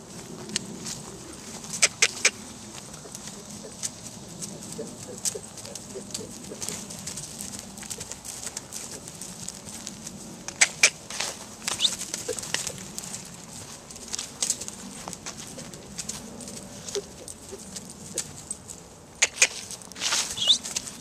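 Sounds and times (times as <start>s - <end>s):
pony hooves trotting on turf: 0.0s - 21.0s
bird call: 11.7s - 12.4s, 20.4s - 20.7s.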